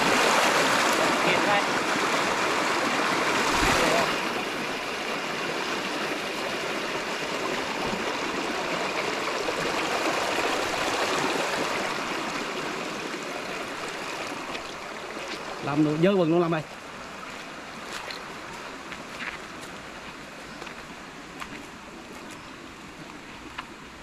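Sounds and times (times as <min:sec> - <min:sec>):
stream water rushing: 0:00.0 - 0:24.0.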